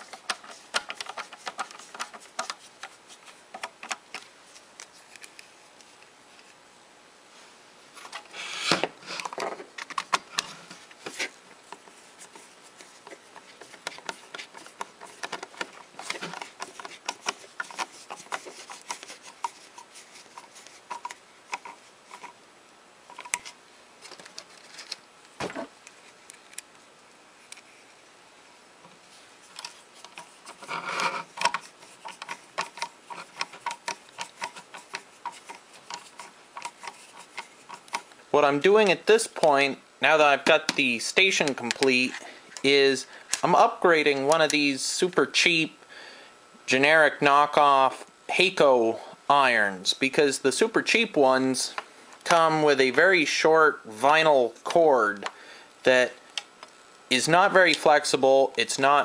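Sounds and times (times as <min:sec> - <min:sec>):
screwdriver clicks and scrapes: 0:00.0 - 0:04.2, 0:11.1 - 0:22.4, 0:29.5 - 0:38.1.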